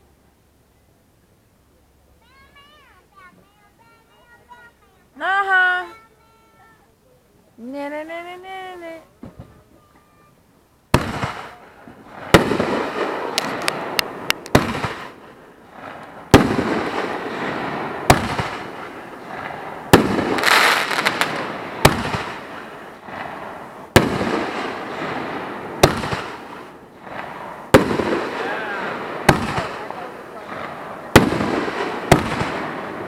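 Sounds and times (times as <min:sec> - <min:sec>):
fireworks crackling and hissing: 0:00.0 - 0:33.0
fireworks bangs: 0:10.9 - 0:33.0.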